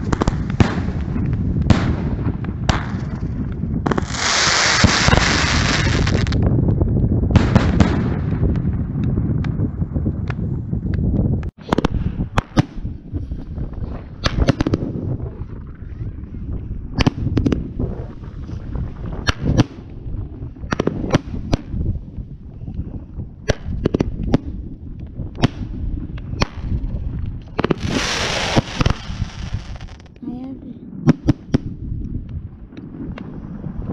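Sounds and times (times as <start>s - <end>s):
fireworks launch shots and bursts: 0.0s - 6.5s, 7.2s - 9.6s, 11.6s - 15.6s, 16.9s - 21.9s, 23.4s - 30.2s, 30.9s - 32.0s
low rumble: 0.0s - 33.9s.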